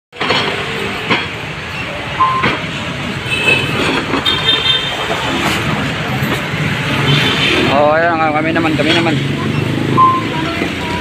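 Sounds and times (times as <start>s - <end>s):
street traffic noise: 0.1s - 11.0s
high-pitched tones: 1.8s - 2.6s, 9.5s - 11.0s.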